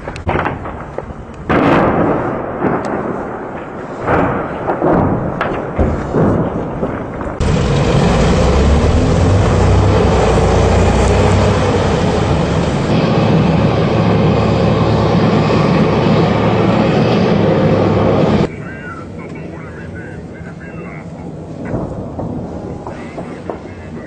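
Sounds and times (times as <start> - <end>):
distant blasts rumbling: 0.0 - 24.0
tank engine and tracks: 6.8 - 24.0.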